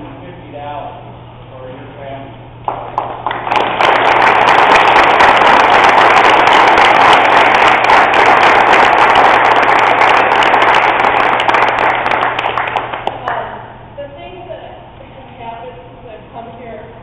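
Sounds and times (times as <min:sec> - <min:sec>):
audience applauding: 0:02.6 - 0:13.5.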